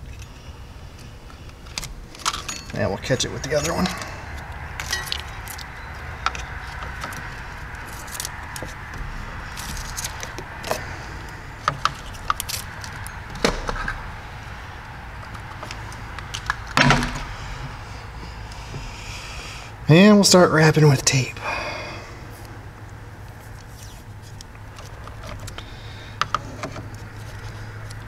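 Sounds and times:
steady low hum: 0:00.0 - 0:28.0
hands handling wires: 0:01.0 - 0:17.8, 0:23.2 - 0:28.0.

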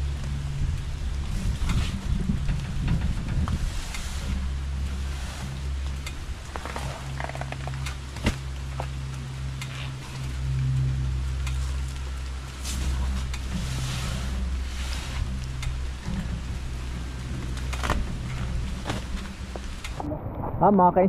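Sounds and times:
rain hissing: 0:00.0 - 0:20.6
low engine hum: 0:00.0 - 0:21.0
sacks dragged on metal cart bed: 0:03.2 - 0:07.8, 0:12.6 - 0:15.6.

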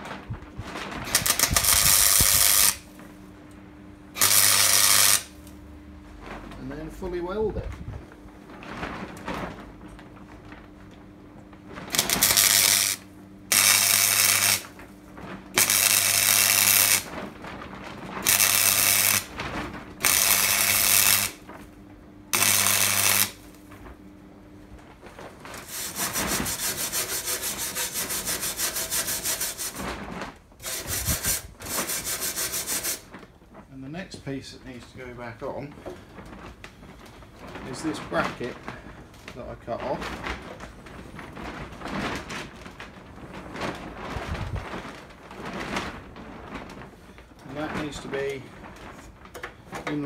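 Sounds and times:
welder bursts: 0:01.1 - 0:02.9, 0:04.1 - 0:05.5, 0:11.9 - 0:14.8, 0:15.6 - 0:17.1, 0:18.2 - 0:19.3, 0:20.0 - 0:21.4, 0:22.3 - 0:23.5, 0:25.6 - 0:29.8, 0:30.6 - 0:33.1
scraping on metal: 0:25.6 - 0:33.1.

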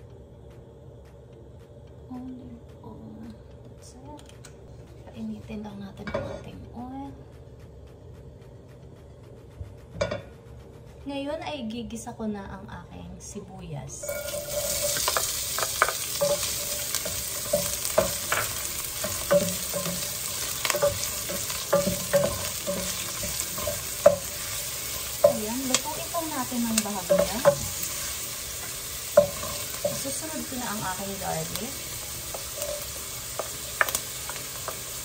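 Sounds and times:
onion sizzling in oil: 0:13.8 - 0:35.0
wooden spoon knocking pot: 0:14.1 - 0:35.0.

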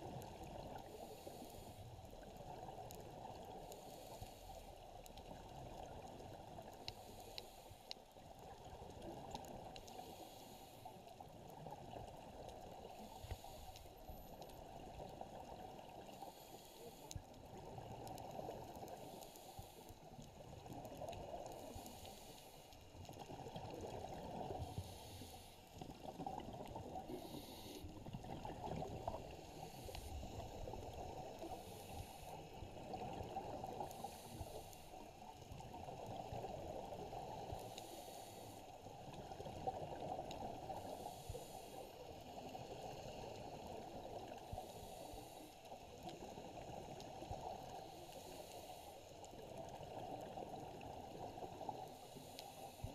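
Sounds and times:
underwater regulator breathing: 0:06.8 - 0:08.0, 0:13.0 - 0:14.5, 0:24.6 - 0:25.7, 0:27.0 - 0:28.5, 0:29.1 - 0:32.5, 0:33.8 - 0:35.0, 0:37.5 - 0:38.7, 0:40.7 - 0:42.0, 0:44.5 - 0:45.6.

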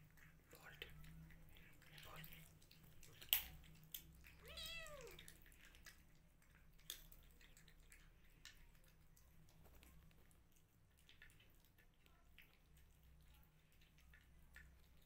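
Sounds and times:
kitten meowing: 0:04.4 - 0:05.2.

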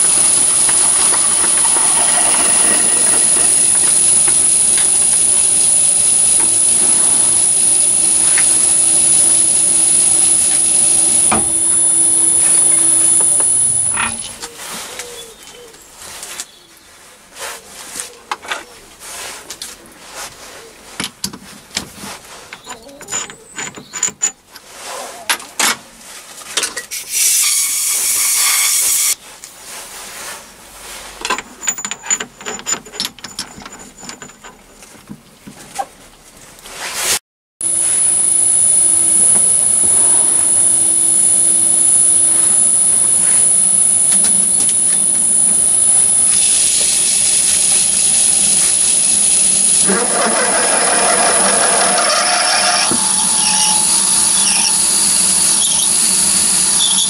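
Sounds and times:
lathe running with whine: 0:00.0 - 0:14.4, 0:37.6 - 0:57.0
loud hiss: 0:00.0 - 0:14.4, 0:37.6 - 0:50.5.

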